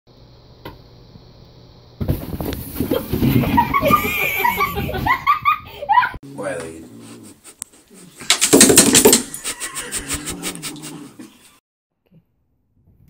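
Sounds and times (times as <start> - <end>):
cat scrambling in cardboard box: 2.0 - 4.1
people laughing loudly: 3.5 - 6.2, 9.3 - 11.5.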